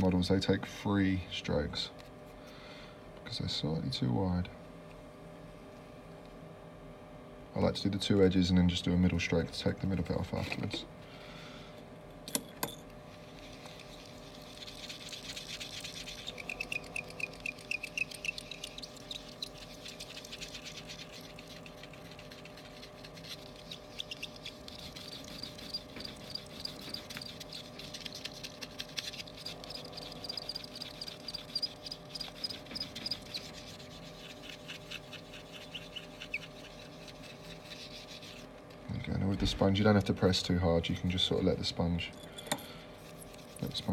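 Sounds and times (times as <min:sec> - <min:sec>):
sponge squeaking on glass: 0:13.4 - 0:38.5.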